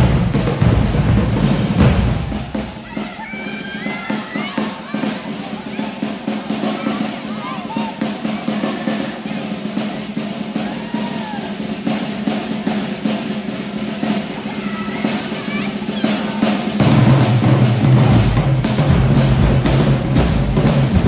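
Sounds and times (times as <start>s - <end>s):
bass drums: 0.0s - 3.2s, 16.7s - 21.0s
marching band playing: 0.0s - 21.0s.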